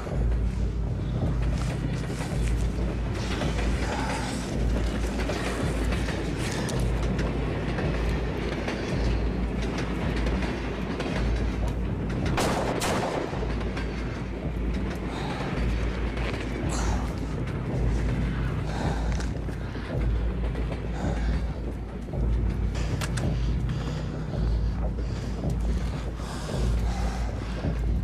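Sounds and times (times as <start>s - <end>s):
low rumbling drone: 0.0s - 28.0s.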